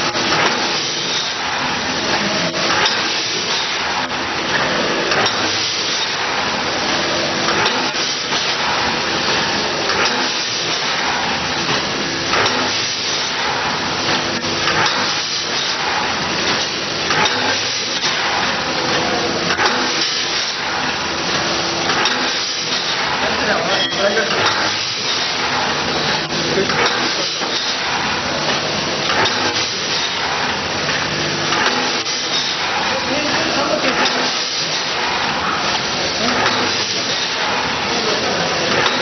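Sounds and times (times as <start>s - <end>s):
bagging machine hissing and clattering: 0.0s - 39.0s
machine knocking: 7.4s - 39.0s.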